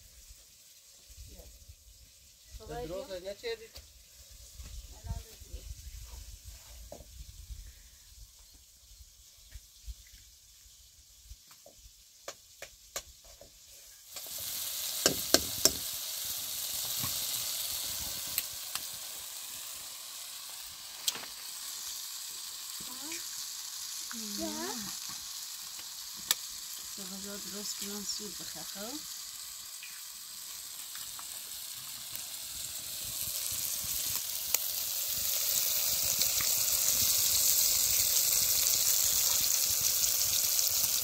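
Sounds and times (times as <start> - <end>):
tomatoes sizzling in oil: 0.0 - 41.0
utensil clicking against pan: 15.0 - 15.8.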